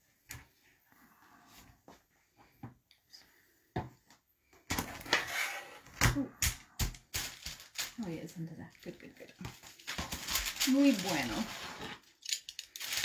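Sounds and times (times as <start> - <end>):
fabric rustling: 9.4 - 12.2.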